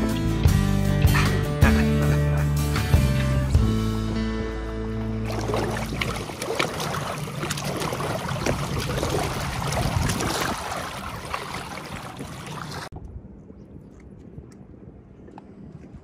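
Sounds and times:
water rushing along boat hull: 4.9s - 13.0s.

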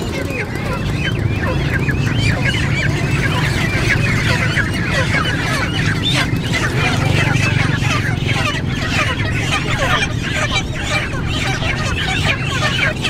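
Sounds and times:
chickens squawking: 0.0s - 13.0s.

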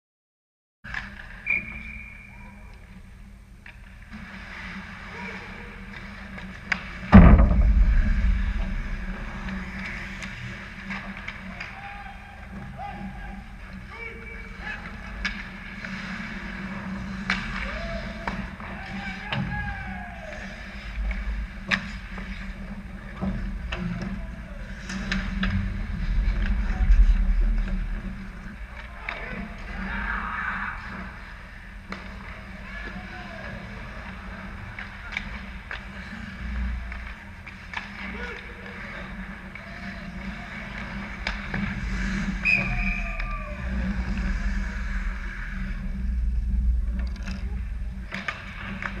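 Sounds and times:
hockey sticks and puck clacking: 0.9s - 2.1s, 5.9s - 7.1s, 14.1s - 26.6s, 28.0s - 45.6s, 47.2s - 49.0s
low rumble of rink: 0.9s - 49.0s
referee's whistle: 1.4s - 2.5s, 42.4s - 43.4s
low rumble: 7.1s - 10.8s, 24.8s - 29.8s, 43.0s - 49.0s
skates scraping on ice: 14.5s - 19.6s, 30.8s - 46.7s.

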